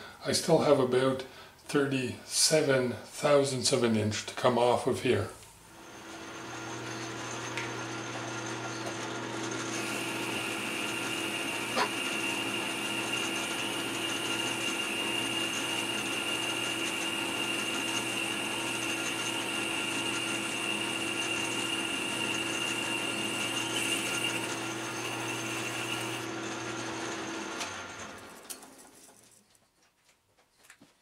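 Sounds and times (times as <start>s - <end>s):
metal lathe whining: 5.7s - 28.7s.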